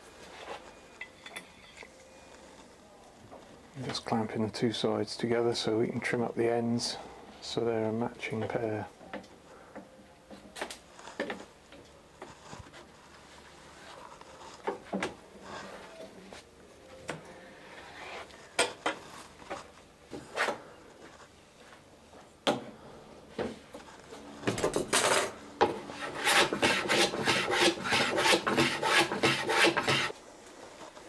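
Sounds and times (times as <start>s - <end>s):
hand tool scraping wood: 25.9s - 30.2s.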